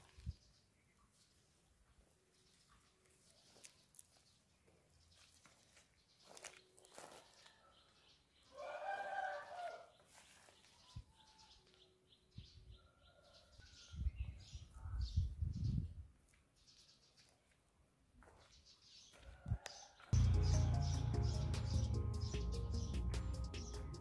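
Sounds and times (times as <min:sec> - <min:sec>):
birds chirping: 0:19.8 - 0:24.0
music: 0:20.2 - 0:24.0.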